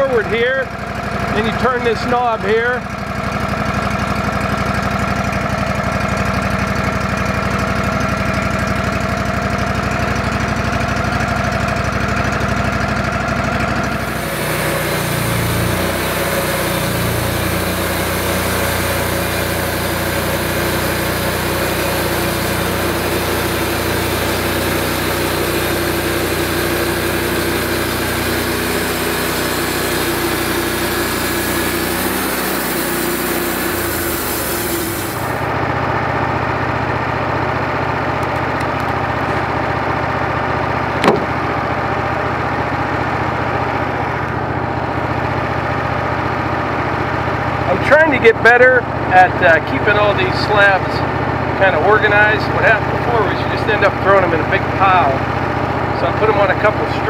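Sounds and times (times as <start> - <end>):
sawmill engine running: 0.0 - 57.0
band saw cutting log: 12.3 - 35.5, 40.9 - 41.8, 49.2 - 55.3, 56.0 - 57.0.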